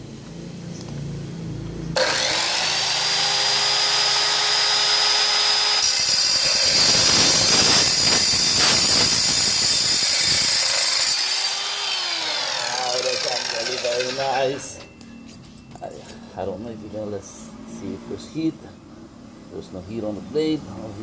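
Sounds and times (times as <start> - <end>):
saw cutting metal tube: 2.0 - 14.7
circular saw whining: 2.0 - 14.9.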